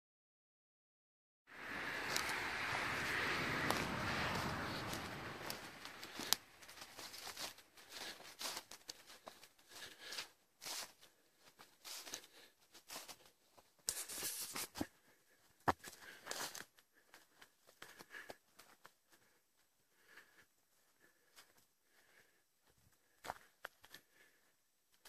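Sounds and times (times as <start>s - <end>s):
footsteps crunching dry leaves: 1.5s - 13.3s, 13.9s - 14.9s.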